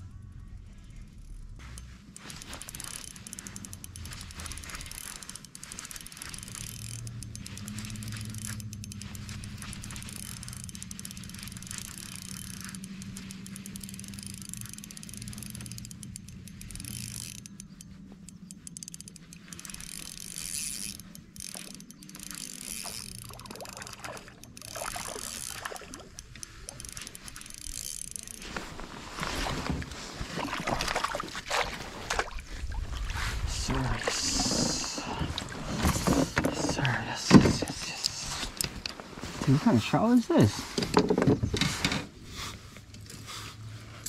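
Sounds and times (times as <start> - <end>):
fishing reel whirring and clicking: 0.8 - 30.0, 33.1 - 39.0
water splashing: 23.2 - 26.3, 29.2 - 36.8.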